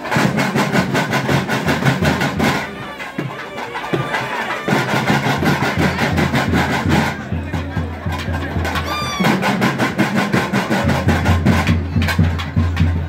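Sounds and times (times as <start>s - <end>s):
fast even beat: 0.0s - 13.0s
reed wind instrument playing: 2.0s - 6.7s.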